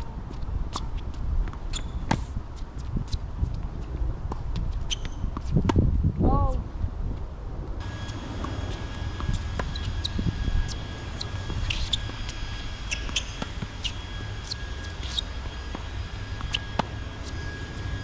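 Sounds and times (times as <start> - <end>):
steady low rumble: 0.0 - 18.0
tennis ball bouncing: 8.4 - 9.9.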